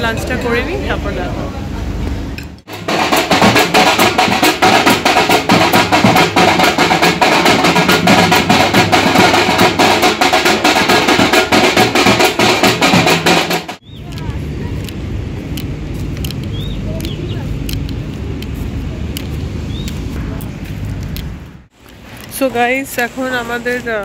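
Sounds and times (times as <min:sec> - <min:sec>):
drums beaten with sticks: 0:02.6 - 0:14.6.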